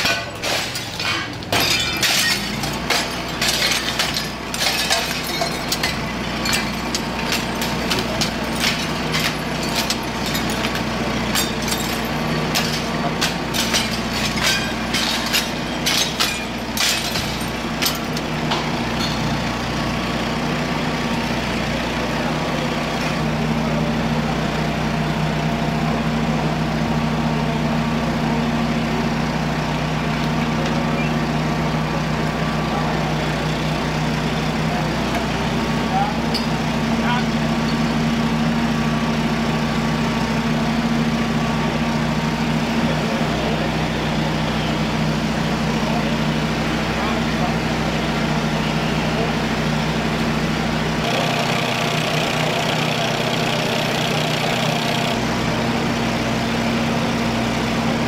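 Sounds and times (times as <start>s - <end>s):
glass breaking: 0.0s - 19.6s
truck engine running: 0.0s - 58.0s.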